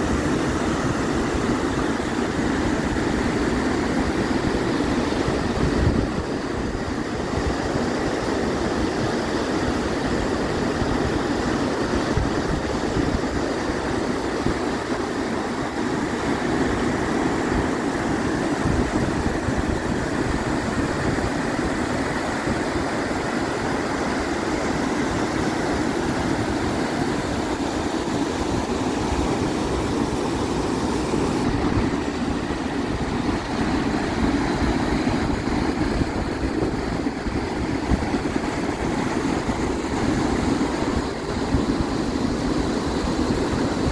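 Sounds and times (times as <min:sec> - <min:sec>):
waterfall rushing: 0:00.0 - 0:43.9.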